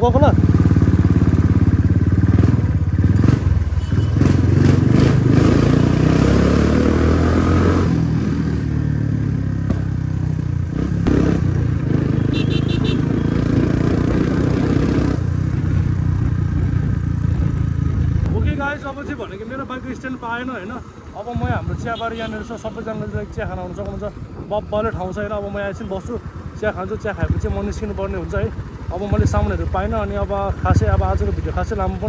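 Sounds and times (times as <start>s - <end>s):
dirt bike engine revving: 0.1s - 18.3s.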